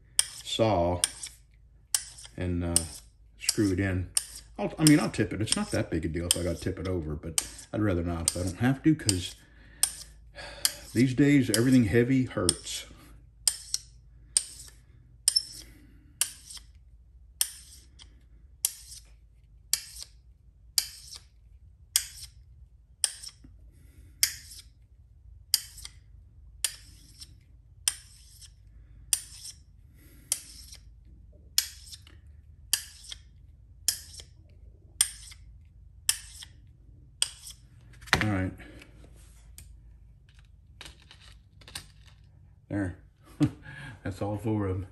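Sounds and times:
magnet scraping along screwdriver: 0.2 - 16.8, 17.4 - 22.4, 23.0 - 23.5, 24.2 - 24.8, 25.5 - 34.4, 35.0 - 38.0.

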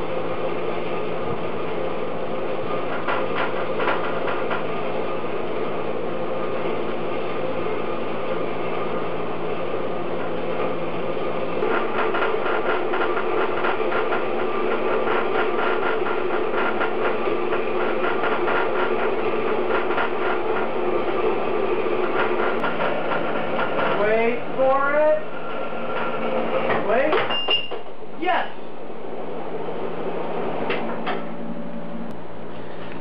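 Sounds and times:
bandsaw cutting metal: 11.6 - 21.2.

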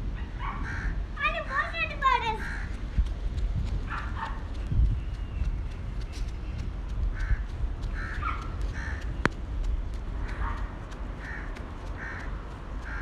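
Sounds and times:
crow cawing: 2.4 - 2.8, 8.0 - 9.1, 11.2 - 13.0.

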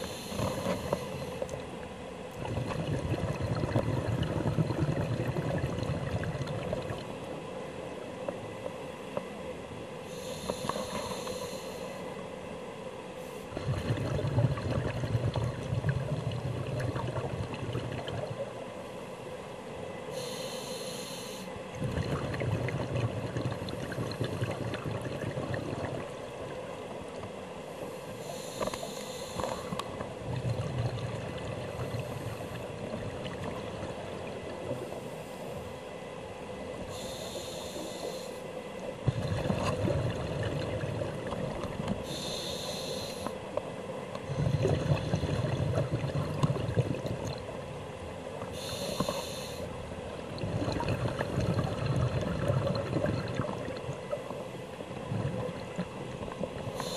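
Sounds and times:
diver inhaling through regulator: 0.0 - 1.4, 10.1 - 12.0, 20.1 - 21.6, 28.0 - 29.9, 36.9 - 38.5, 42.0 - 43.4, 48.5 - 49.8
exhaled bubbles rumbling: 0.0 - 7.3, 13.5 - 18.6, 21.7 - 27.2, 29.4 - 35.1, 38.9 - 42.0, 44.1 - 47.8, 50.0 - 56.8.

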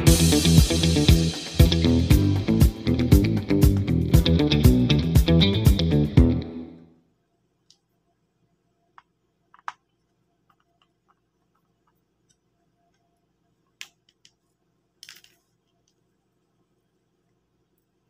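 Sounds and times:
faint clicks of plastic parts: 8.9 - 16.2.

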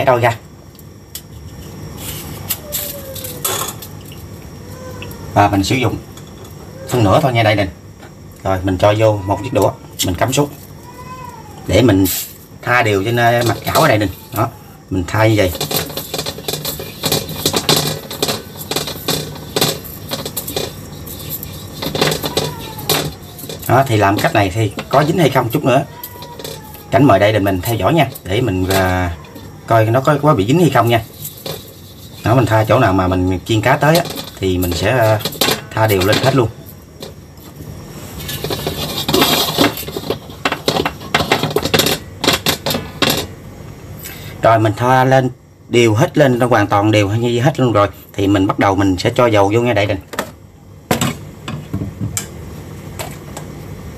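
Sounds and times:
radish scraping a wok: 1.2 - 4.4, 11.8 - 43.4.

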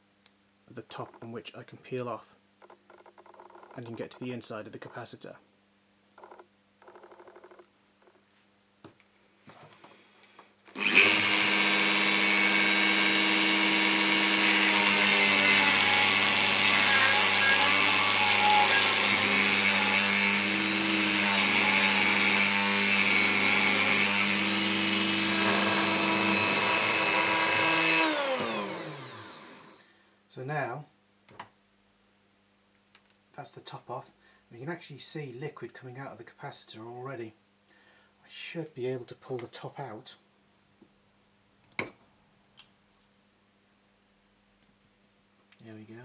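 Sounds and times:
rotary tool cutting metal: 10.8 - 29.3.

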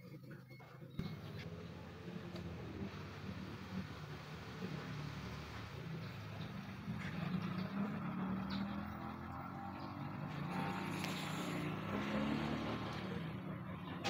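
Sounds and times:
vehicle engine humming: 0.8 - 14.0.

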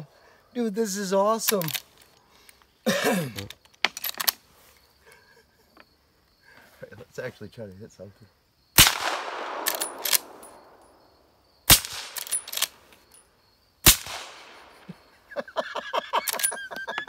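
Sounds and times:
man laughing: 5.0 - 5.8, 14.8 - 17.0
suppressed rifle shots: 8.8 - 11.0, 11.7 - 12.8, 13.8 - 14.9
rifle lever clacks: 9.0 - 10.6.

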